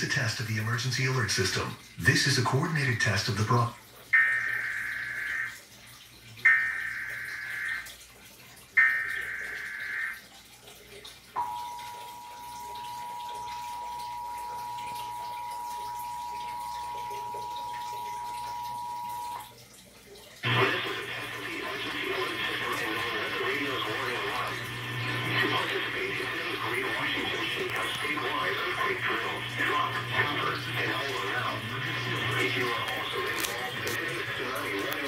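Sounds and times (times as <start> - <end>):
television sound: 0.0 - 35.0
harsh buzzing data bursts: 4.2 - 5.6, 6.5 - 7.9, 8.8 - 10.2, 11.4 - 19.5
two-tone alert signal: 4.2 - 5.6, 6.5 - 7.9, 8.8 - 10.2, 11.4 - 19.5.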